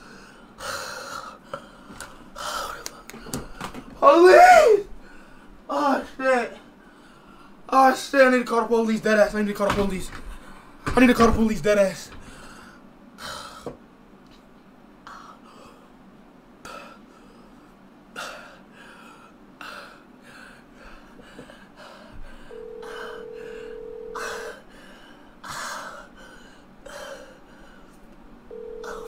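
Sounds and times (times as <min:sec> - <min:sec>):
man gasping and breathing hard: 0:18.1 - 0:28.0
telephone ringback tone: 0:22.5 - 0:24.6, 0:28.5 - 0:29.0.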